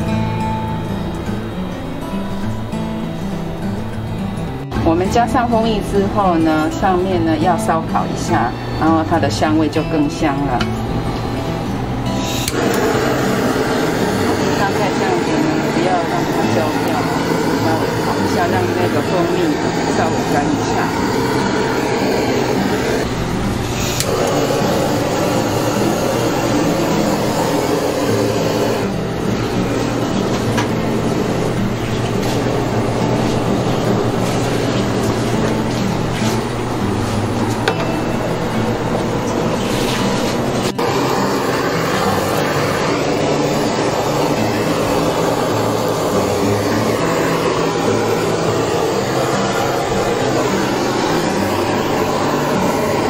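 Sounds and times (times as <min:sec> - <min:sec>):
gas torch hissing: 0:00.0 - 0:08.3, 0:09.0 - 0:53.0
torch click: 0:12.2 - 0:36.5.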